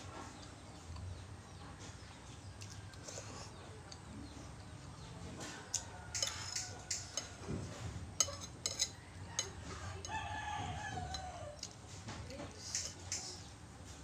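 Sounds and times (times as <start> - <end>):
metal spoon clinking on ceramic plate: 6.1 - 7.4, 8.2 - 10.2.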